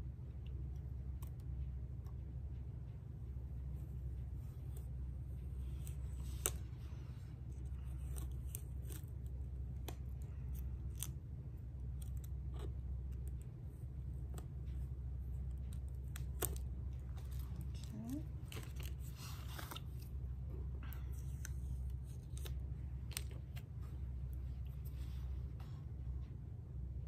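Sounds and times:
tweezers clicking and scraping: 7.5 - 13.5.

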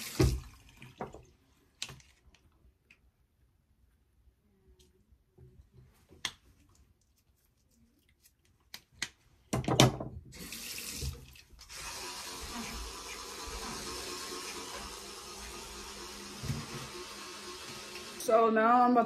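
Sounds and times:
tap water running into sink: 0.0 - 1.4, 10.3 - 18.3.

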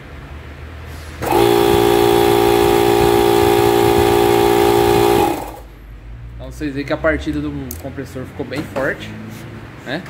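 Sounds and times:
air compressor motor whining: 1.1 - 5.8.

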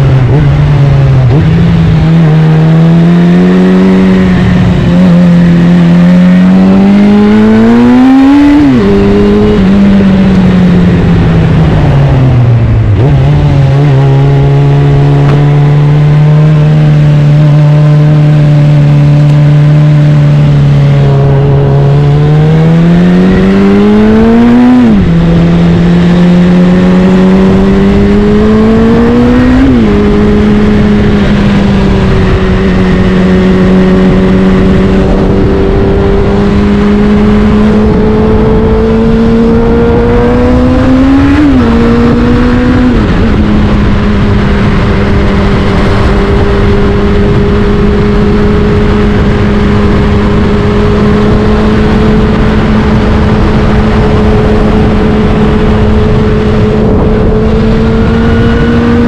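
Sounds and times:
motorcycle engine upshifting: 0.0 - 59.0.

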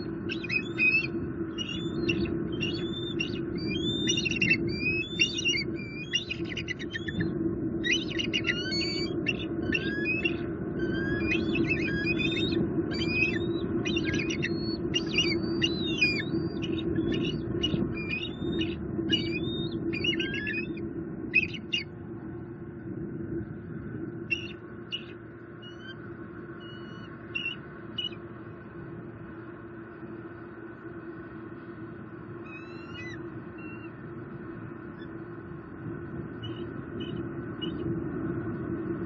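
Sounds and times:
eagles piping chatter calls: 0.0 - 21.9, 24.3 - 28.2, 32.4 - 33.9
steady low hum: 0.0 - 39.0.

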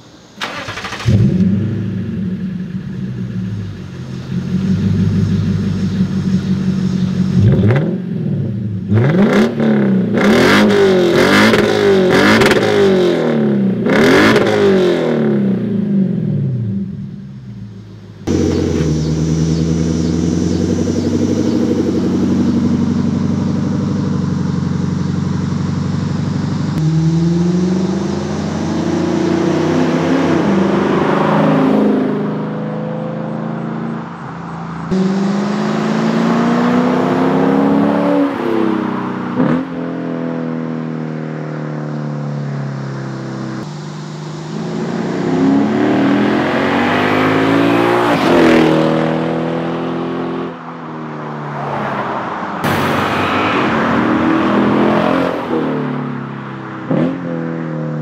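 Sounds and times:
car driving engine pulling: 0.0 - 13.0, 17.4 - 40.8
car engine idling and revving: 0.0 - 58.0.

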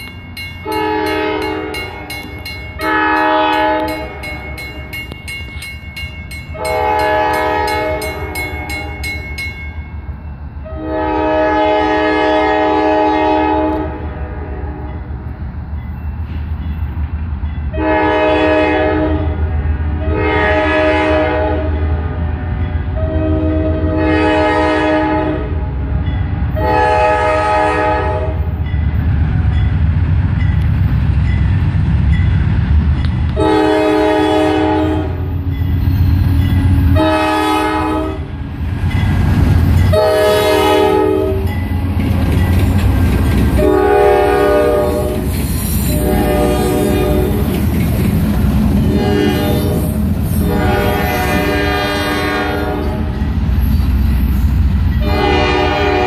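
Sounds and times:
locomotive air horn blasts: 0.6 - 4.4, 6.5 - 8.9, 10.6 - 14.9, 17.7 - 25.8, 26.6 - 28.5, 33.4 - 35.5, 36.6 - 38.4, 39.9 - 41.5, 43.6 - 47.5, 48.8 - 53.1, 55.0 - 56.0
diesel engines rumbling: 19.4 - 56.0.

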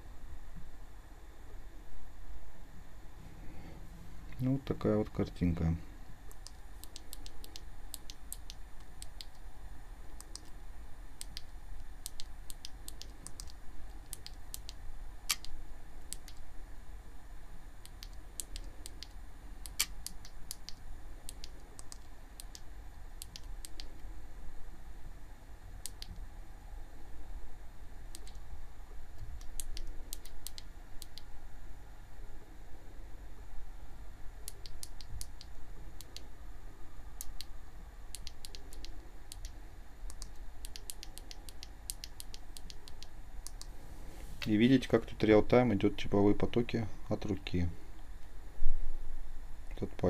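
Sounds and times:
low hum: 0.0 - 50.0.

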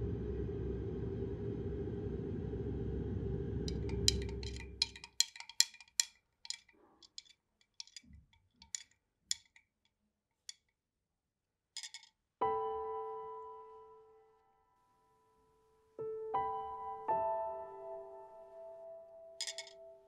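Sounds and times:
low rumble: 0.0 - 4.9
light ringing clinks: 19.4 - 19.8.

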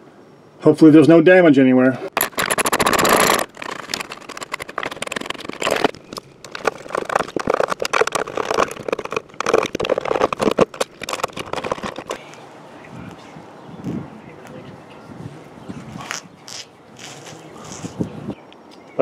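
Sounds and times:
tools and parts clicking and scraping: 2.1 - 12.3.

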